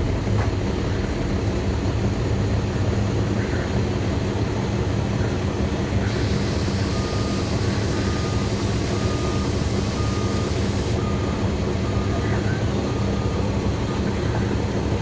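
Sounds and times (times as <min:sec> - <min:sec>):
bus diesel engine running: 0:00.0 - 0:15.0
high hiss: 0:06.1 - 0:11.0.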